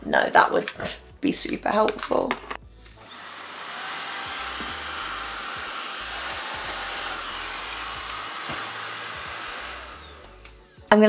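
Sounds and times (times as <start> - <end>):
stick vacuum motor whine: 2.8 - 10.8.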